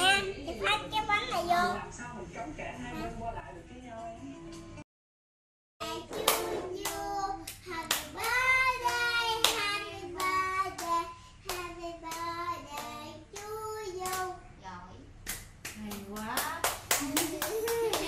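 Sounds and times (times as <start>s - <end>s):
voices singing together: 5.8s - 14.4s.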